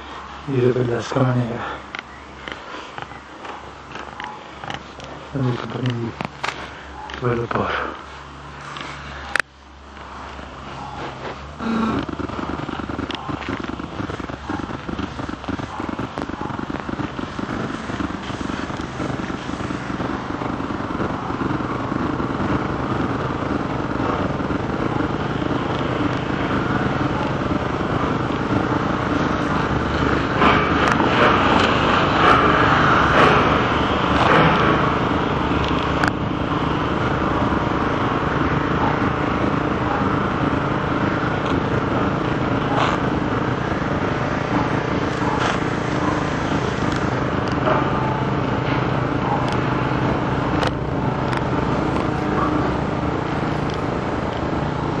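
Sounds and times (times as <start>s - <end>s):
motor engine running: 0.0s - 55.0s
sharp clicks: 1.8s - 7.5s, 8.6s - 36.2s, 44.6s - 54.7s.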